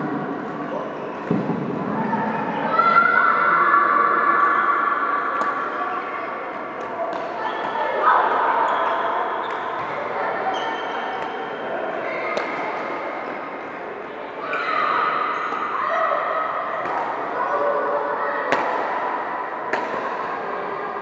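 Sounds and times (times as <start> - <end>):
reverberant hall din with voices: 0.0 - 21.0
racket hitting shuttlecock: 12.3 - 12.9, 18.5 - 19.0, 19.7 - 20.2.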